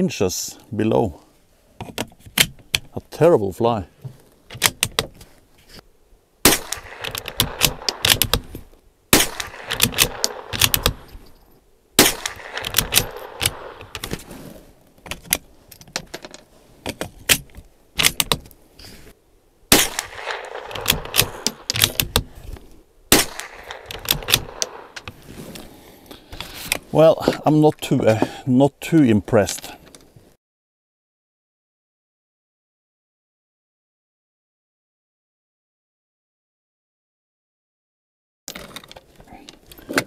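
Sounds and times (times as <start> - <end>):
gunshots with echo: 6.5 - 8.3, 9.1 - 11.1, 12.0 - 13.8, 19.7 - 21.7, 23.1 - 25.0.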